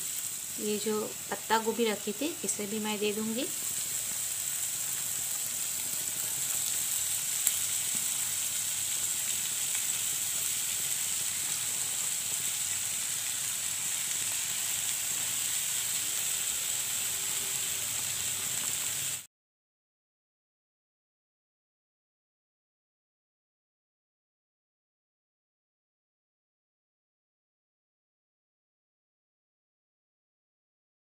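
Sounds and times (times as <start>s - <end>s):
vegetables sizzling in oil: 0.0s - 19.3s.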